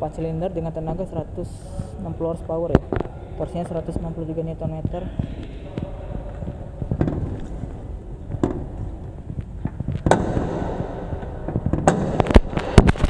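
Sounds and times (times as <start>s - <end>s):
steady low rumble: 0.0s - 13.0s
sharp knocks and clicks: 8.2s - 13.0s.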